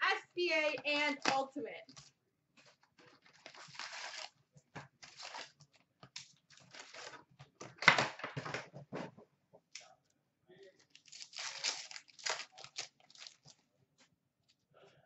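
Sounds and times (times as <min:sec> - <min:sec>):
paper sheet rustling: 0:01.2 - 0:07.3.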